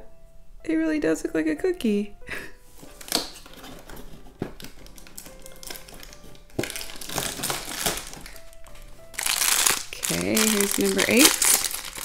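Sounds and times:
soft background music: 0.0s - 12.0s
plastic bag rustling: 2.7s - 12.0s.

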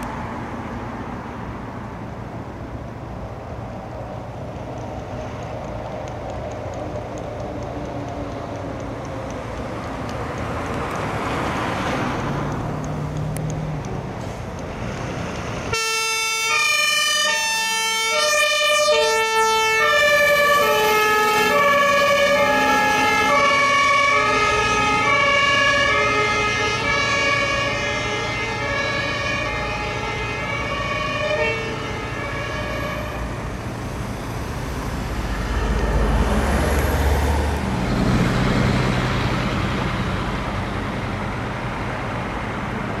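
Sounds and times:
truck traffic: 0.0s - 43.0s
second two-tone siren: 15.7s - 33.2s
fire engine two-tone siren: 15.7s - 33.6s, 35.0s - 37.4s.

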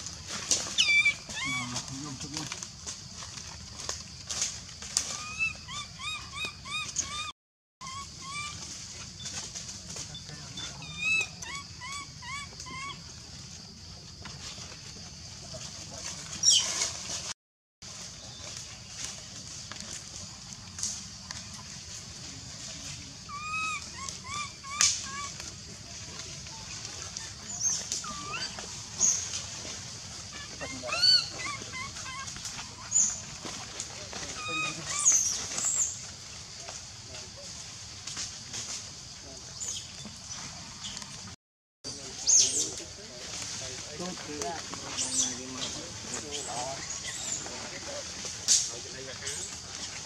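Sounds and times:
baby monkey crying: 0.8s - 1.9s, 5.2s - 8.6s, 10.8s - 13.0s, 23.2s - 25.5s, 28.0s - 28.6s, 30.3s - 33.0s
baby monkey crying coos: 23.2s - 25.5s, 28.0s - 28.6s, 30.3s - 33.0s.

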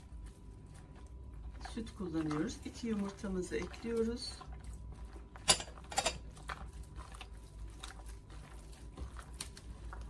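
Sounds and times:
hand squelching dough in bowl: 0.0s - 10.0s.

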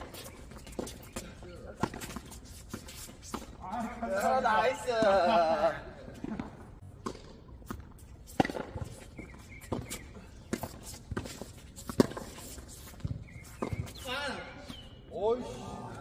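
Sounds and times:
tennis balls bouncing on court: 0.0s - 4.0s, 4.8s - 14.8s
tennis balls struck by racquets: 6.2s - 14.8s.

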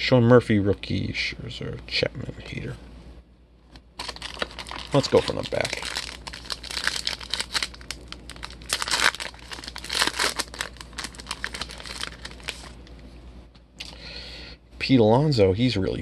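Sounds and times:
foil wrapper crinkling and tearing: 4.0s - 12.8s.

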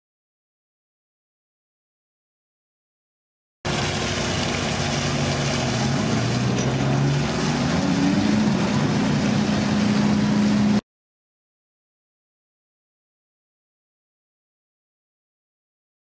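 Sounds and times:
ship engines humming: 3.7s - 10.8s.

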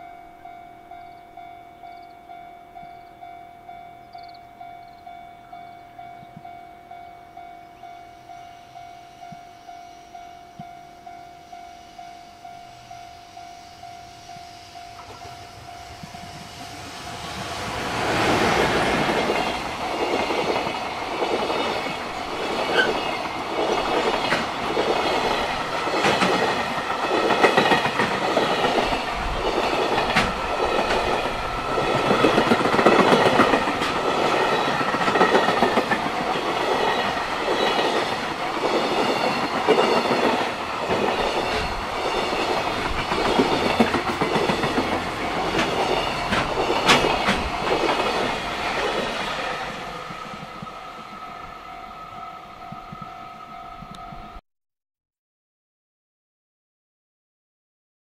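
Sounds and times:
level crossing warning bell: 0.0s - 54.4s
train wheels clacking over rail joints: 15.0s - 51.4s.

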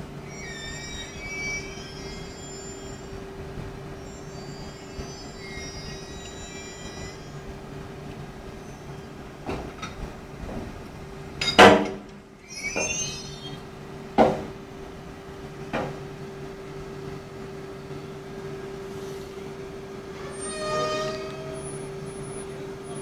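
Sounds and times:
locomotive hum: 0.0s - 23.0s
brief rising squeal: 0.2s - 7.8s, 12.3s - 14.0s, 20.1s - 23.0s.

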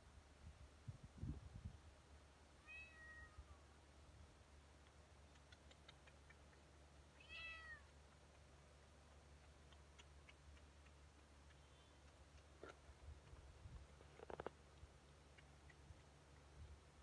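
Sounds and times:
cat meowing: 2.6s - 3.5s, 7.2s - 7.9s
faint clicks: 4.8s - 7.0s, 7.8s - 16.6s.

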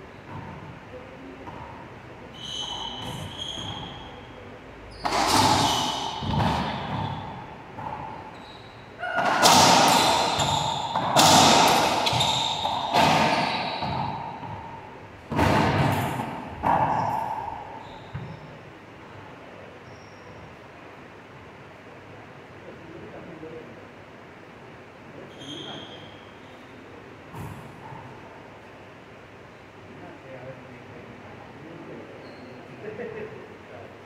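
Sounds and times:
racquets hitting ball: 5.0s - 8.4s, 9.0s - 18.4s
ball slamming off walls: 5.1s - 8.0s, 9.2s - 14.7s, 15.3s - 17.1s.

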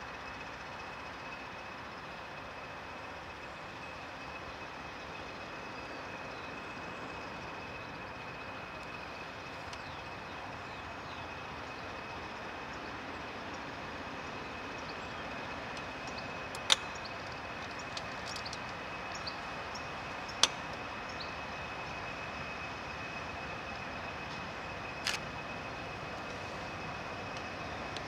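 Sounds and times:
distant diesel locomotive rumbling: 0.0s - 28.0s
high-pitched whine: 0.0s - 28.0s
sharp clicks: 15.8s - 18.8s, 20.3s - 20.8s, 25.0s - 25.3s.

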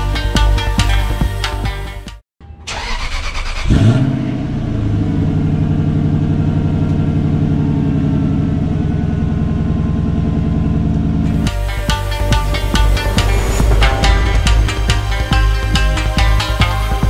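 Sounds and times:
car engine revving and idling: 3.6s - 11.3s.

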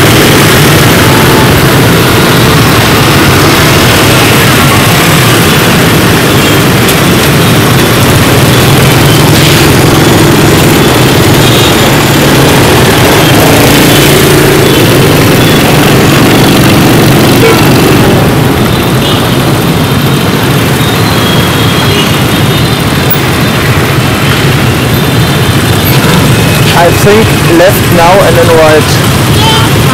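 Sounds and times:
motorcycle engine running: 0.0s - 29.9s
road and wind noise: 0.0s - 29.9s.

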